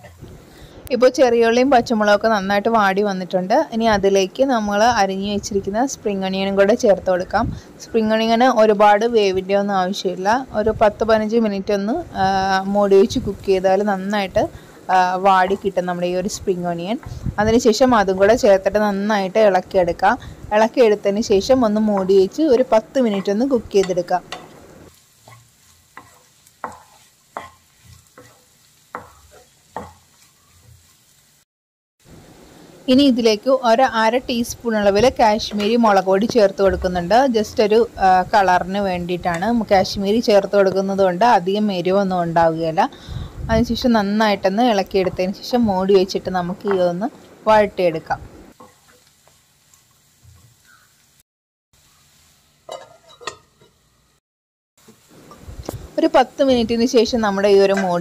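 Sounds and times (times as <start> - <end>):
spatula stirring vegetables in pan: 10.6 - 31.4, 33.2 - 51.2, 51.8 - 54.2, 54.8 - 58.0
wooden spatula scraping a frying pan: 21.3 - 31.4, 48.5 - 50.7, 52.1 - 53.9
metal lid clinking on pan: 52.7 - 53.8.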